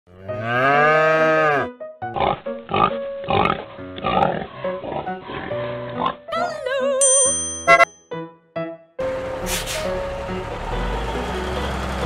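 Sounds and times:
cartoon cow mooing: 0.1s - 2.3s.

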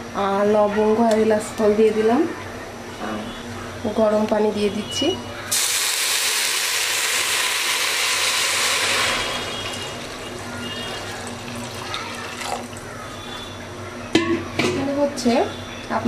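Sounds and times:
water pouring into a pot: 5.5s - 12.9s.

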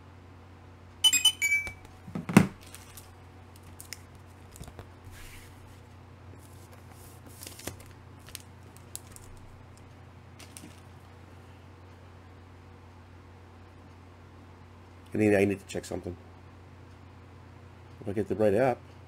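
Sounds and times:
electronic tones: 1.0s - 1.8s
book knocking on countertop: 2.1s - 2.6s
plastic bag rustling and clicks: 2.2s - 4.9s, 6.5s - 9.8s, 10.4s - 10.9s.

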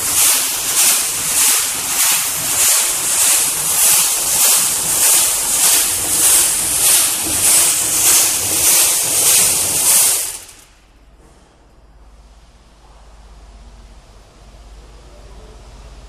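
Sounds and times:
faint low hum: 10.9s - 16.0s.

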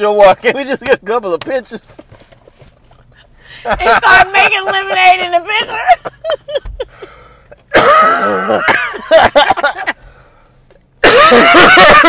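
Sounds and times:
people laughing hard: 3.6s - 7.2s, 7.8s - 10.0s, 11.0s - 12.0s.

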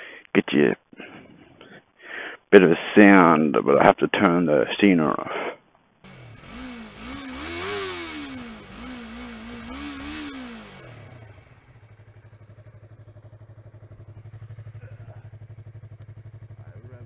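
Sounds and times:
motorcycle engine idling: 6.0s - 17.0s
motorcycle engine revving: 6.0s - 17.0s.

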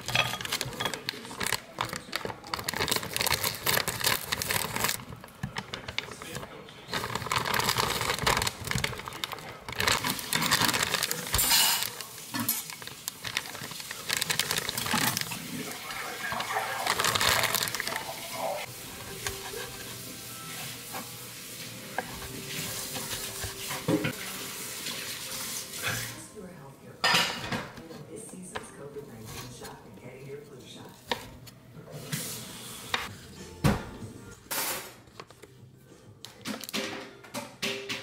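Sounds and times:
plastic packaging crinkling: 0.0s - 21.1s, 22.0s - 24.2s.

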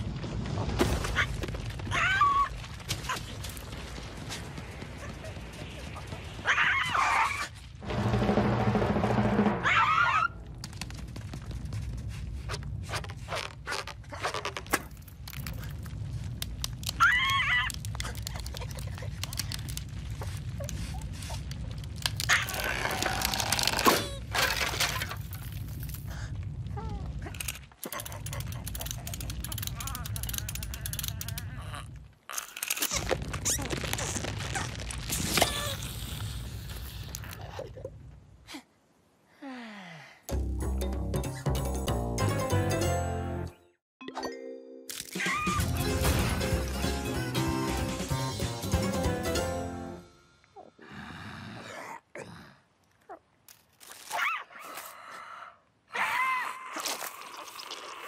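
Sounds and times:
music: 7.8s - 9.8s, 40.3s - 50.3s
cartoon creaks and scrapes: 12.5s - 26.1s, 27.2s - 37.6s.

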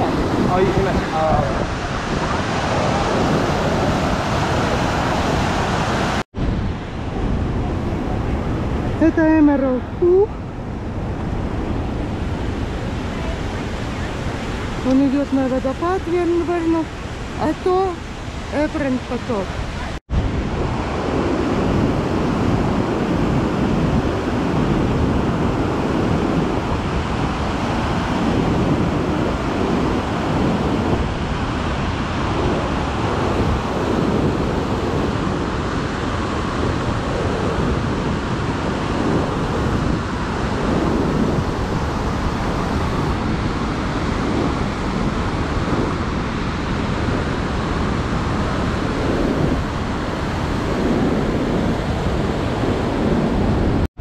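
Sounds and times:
whitewater rushing: 0.0s - 10.6s.

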